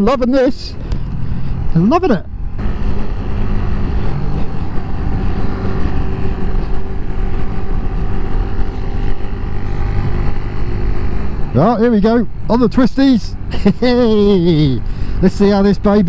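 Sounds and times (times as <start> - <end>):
wind rumble: 0.6 - 16.0
motorcycle engine running: 2.5 - 13.2.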